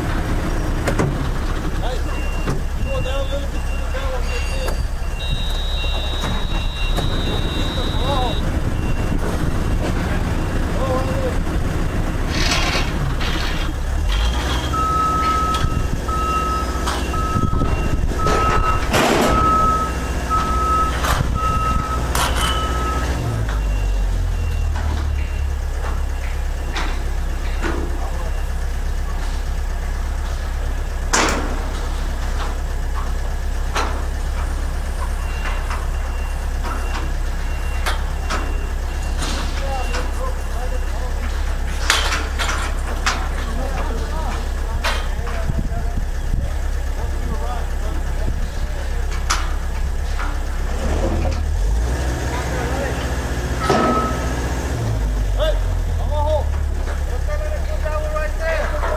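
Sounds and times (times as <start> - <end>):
heavy equipment engine rumbling: 0.0 - 58.9
motion alarm beeping: 1.9 - 9.3, 14.7 - 28.6, 35.1 - 41.2, 53.6 - 54.4
metal knocks and clanks: 16.8 - 23.8.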